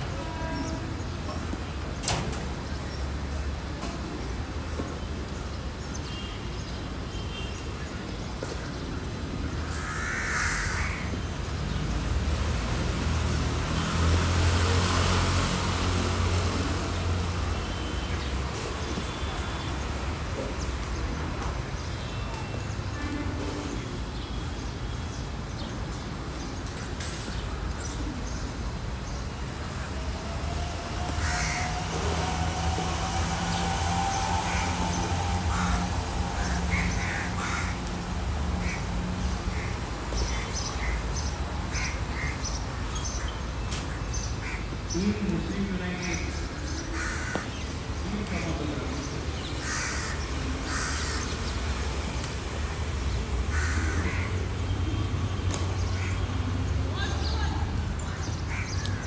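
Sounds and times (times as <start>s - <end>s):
crows cawing: 9.6s - 11.1s, 31.0s - 31.9s, 34.2s - 39.8s, 46.8s - 47.6s, 49.6s - 51.3s, 53.5s - 54.4s.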